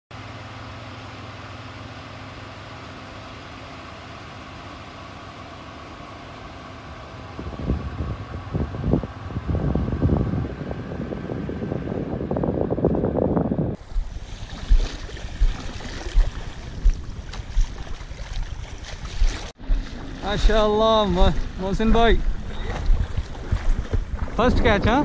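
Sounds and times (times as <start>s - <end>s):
vehicle engine humming: 0.1s - 25.0s
uneven rumbling on sand: 7.0s - 25.0s.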